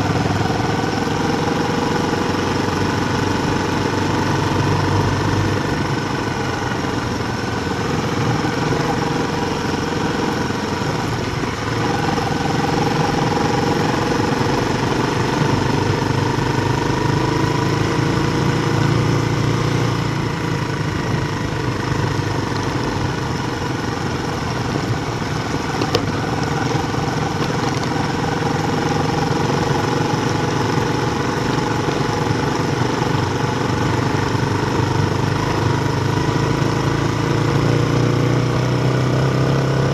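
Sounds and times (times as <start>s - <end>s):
bike rolling hum: 0.0s - 39.9s.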